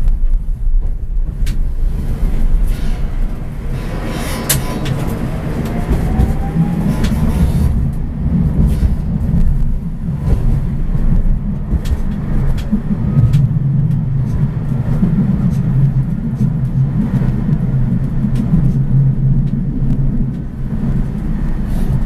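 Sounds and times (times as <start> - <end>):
tram wheels rumbling on rails: 0.0 - 22.0.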